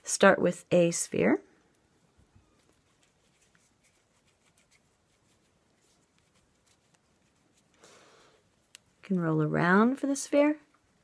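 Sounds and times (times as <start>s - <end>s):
clay rolled between palms: 1.6s - 9.1s.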